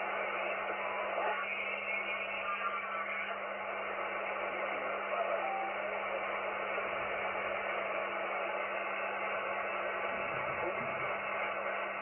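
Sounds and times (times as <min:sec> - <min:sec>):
radio receiver hiss: 0:00.0 - 0:12.0.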